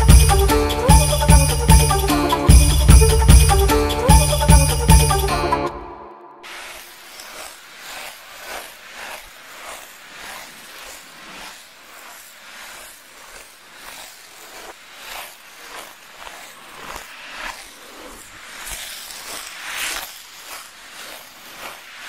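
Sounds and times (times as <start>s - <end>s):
ice skates scraping on ice: 6.4s - 22.0s.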